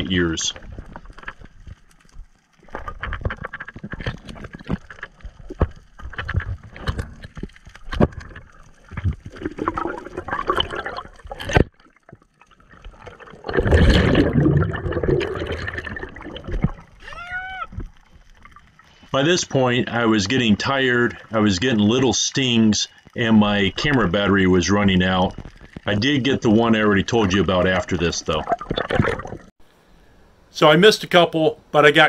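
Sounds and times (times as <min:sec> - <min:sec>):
water swishing: 0:00.0 - 0:29.6
underwater clicks and knocks: 0:00.6 - 0:14.4, 0:27.2 - 0:29.5
air bubbles gurgling: 0:03.4 - 0:17.0, 0:23.2 - 0:29.5.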